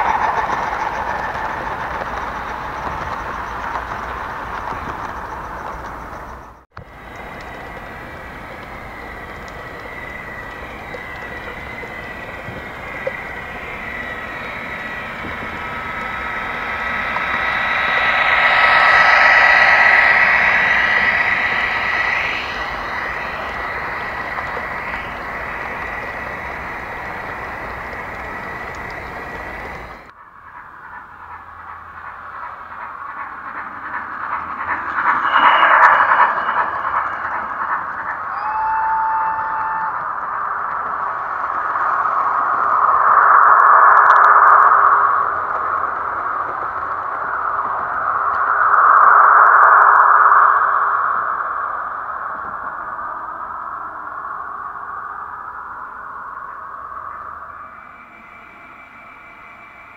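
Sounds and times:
model train rumbling with whine: 0.0 - 59.9.

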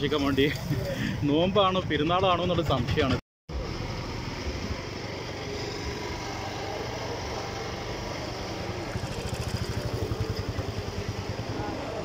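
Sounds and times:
engine running at low revs: 3.5 - 12.0.

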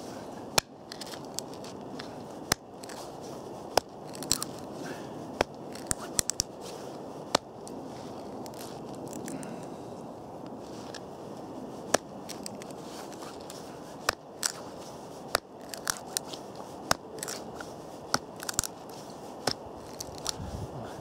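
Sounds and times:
knife cracking wooden board: 3.7 - 4.6, 15.3 - 16.2, 18.1 - 18.7.

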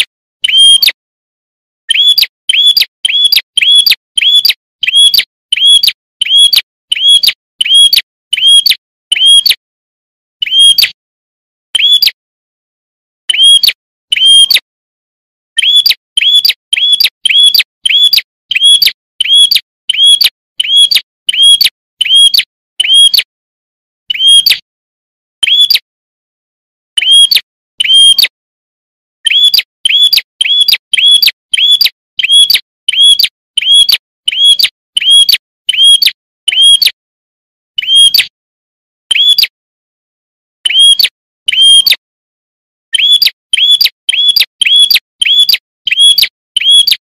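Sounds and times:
bird sharp chirps: 0.0 - 1.0, 1.9 - 9.6, 10.4 - 11.0, 11.8 - 12.2, 13.3 - 14.6, 15.6 - 23.2, 24.1 - 24.6, 25.4 - 25.8, 27.0 - 28.3, 29.2 - 37.0, 37.8 - 38.3, 39.1 - 39.6, 40.6 - 42.0, 42.9 - 47.0.

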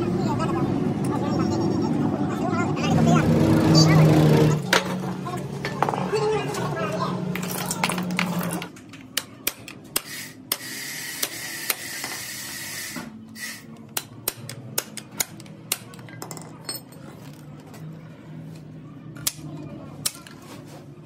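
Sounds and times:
metal clinks and knocks: 15.4 - 17.4.

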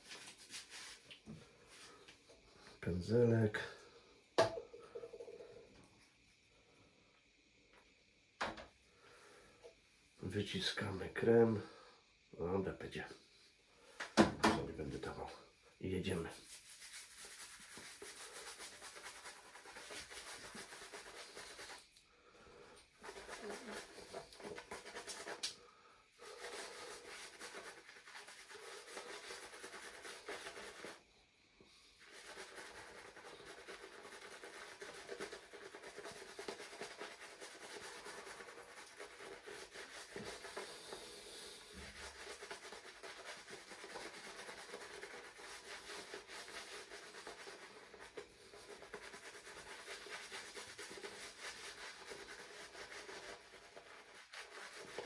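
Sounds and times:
shaving brush lathering: 0.0 - 1.9, 15.8 - 22.0, 22.8 - 55.0.

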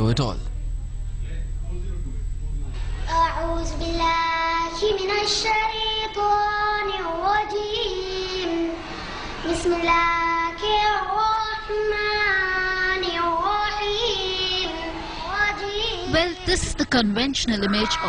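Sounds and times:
girl chanting melodically: 3.1 - 8.8, 9.4 - 18.0.

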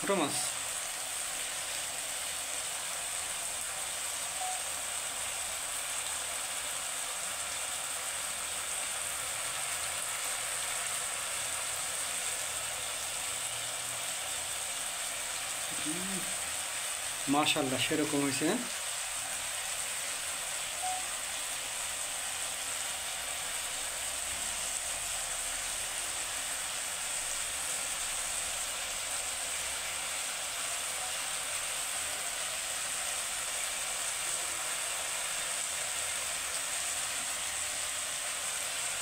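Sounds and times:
fish and vegetables sizzling in oil: 0.0 - 39.0.

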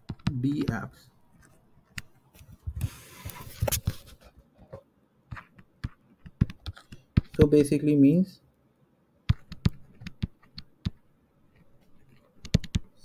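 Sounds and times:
stylus tapping and clicking: 0.0 - 2.6, 4.6 - 7.6, 9.2 - 13.0
stylus scratchy rustle: 1.3 - 7.0, 11.5 - 12.4.

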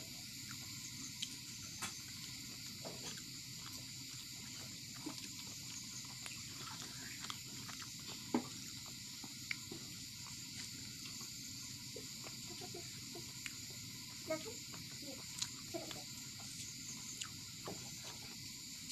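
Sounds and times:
bread tearing and chewing: 2.2 - 11.1.

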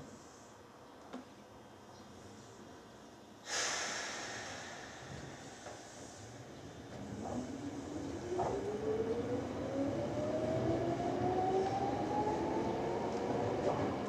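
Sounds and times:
wheels rumbling on rails: 6.8 - 14.0.

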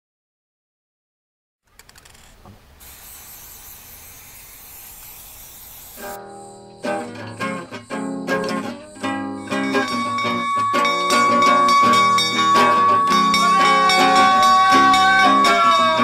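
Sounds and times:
steady hiss: 1.7 - 6.2
acoustic guitar music: 6.0 - 16.0.

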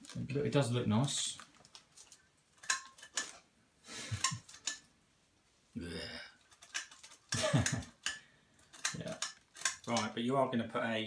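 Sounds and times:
clatter of hard objects handled: 6.5 - 9.9.

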